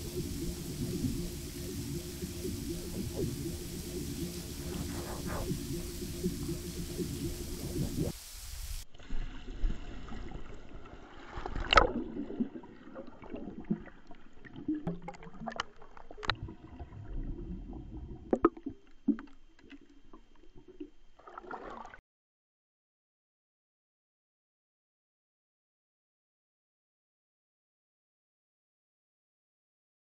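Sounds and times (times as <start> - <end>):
splash: 0.0 - 17.1, 21.2 - 22.0
muffled underwater movement: 0.0 - 22.0.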